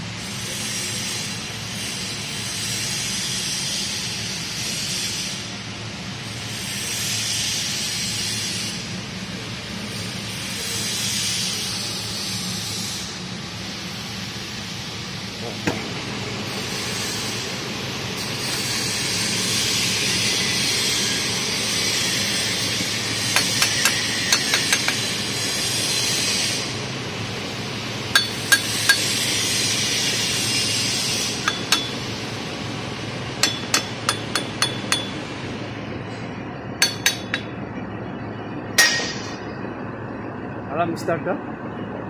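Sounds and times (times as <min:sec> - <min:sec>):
hammer clinking on steel pipe: 0:23.4 - 0:25.0, 0:28.2 - 0:29.2, 0:31.5 - 0:32.1, 0:33.4 - 0:35.2, 0:36.8 - 0:37.5.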